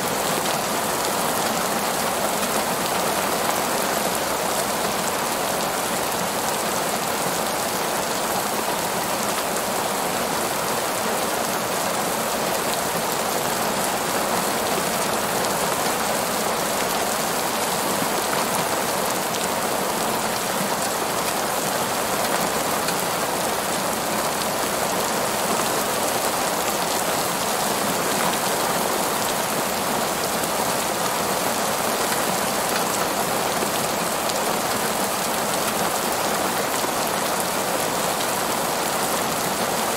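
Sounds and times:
heavy rain on pavement: 0.0 - 39.9.

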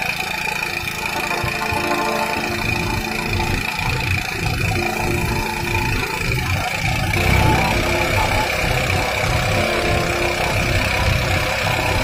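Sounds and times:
constant high whine: 0.0 - 12.0
rice thresher low pulsing rumble: 0.1 - 12.0.

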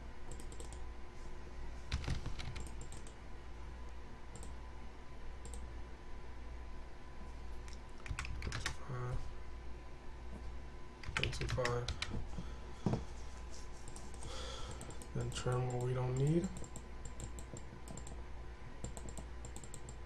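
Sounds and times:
steady low hum: 0.0 - 20.0
keyboard and mouse clicks: 0.3 - 0.8, 1.9 - 3.2, 4.3 - 4.6, 7.7 - 8.8, 11.0 - 12.2, 13.8 - 18.2, 18.8 - 20.0.

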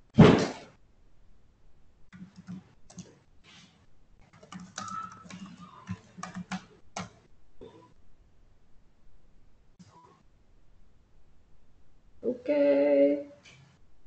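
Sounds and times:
computer keyboard typing: 2.1 - 3.2, 4.2 - 7.3.

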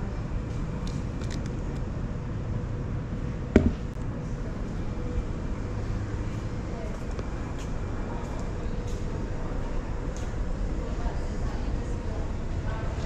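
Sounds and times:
low shop interior rumble: 0.0 - 13.0
sharp knock: 3.6 - 3.9.

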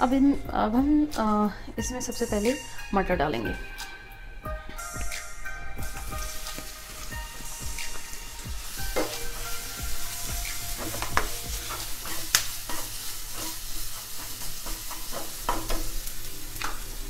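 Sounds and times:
peas sizzling in hot oil: 4.8 - 17.0
spatula scraping a pan: 8.6 - 17.0.

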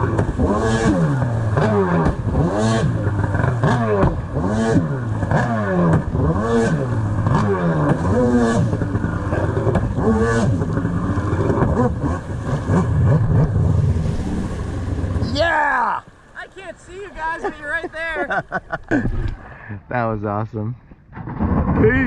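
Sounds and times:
jet ski engine revving: 0.0 - 16.0.

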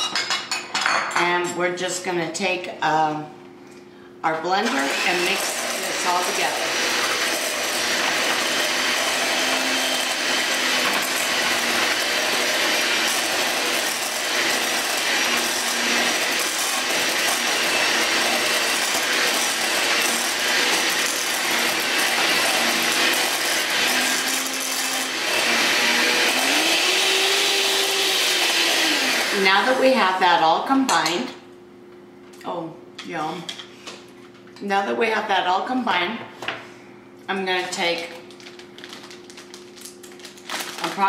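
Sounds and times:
electric hand mixer running: 4.6 - 30.4.

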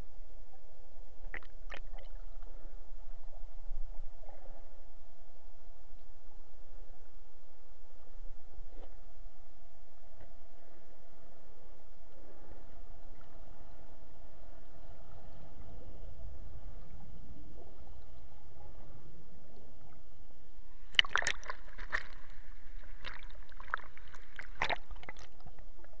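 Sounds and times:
air bubbles clicking and crackling: 1.2 - 2.2, 20.9 - 25.6
underwater flowing water rush: 20.8 - 26.0.

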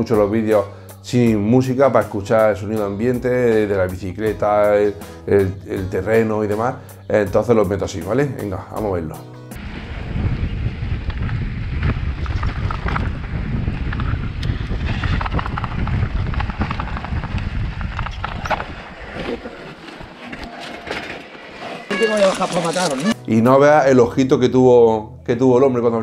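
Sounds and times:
wind rumbling on microphone: 9.6 - 20.5
tyres rolling on dirt trail: 9.6 - 23.2.

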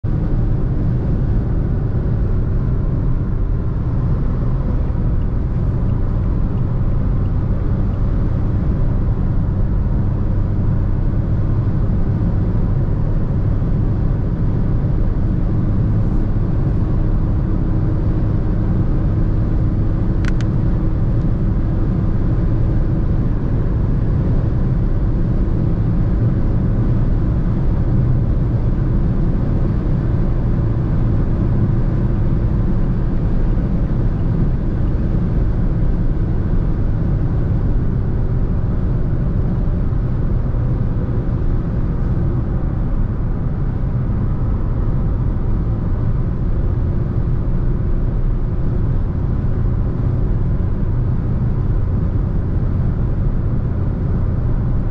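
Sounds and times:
car engine and tyre rumble: 0.0 - 54.9
faint constant drone: 0.0 - 54.9.

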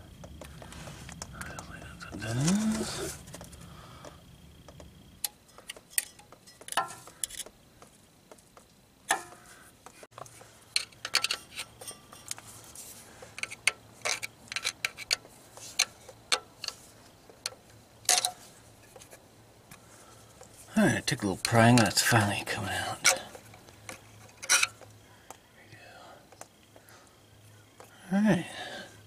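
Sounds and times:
screwdriver clicking and scraping metal: 5.2 - 7.5, 10.7 - 12.4, 13.3 - 16.8, 23.0 - 24.8.

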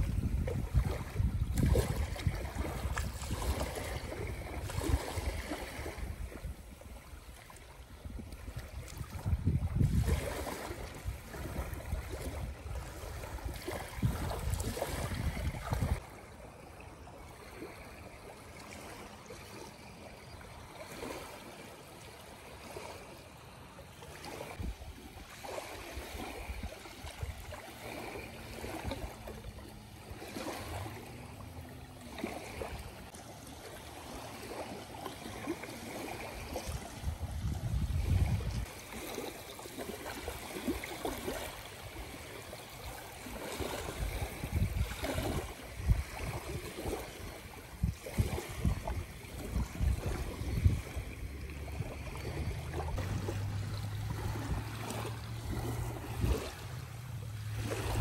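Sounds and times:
wind rumbling on microphone: 0.0 - 16.1, 24.4 - 31.7, 36.3 - 39.1, 43.2 - 58.0
small waves lapping on sand and rocks: 0.0 - 58.0.

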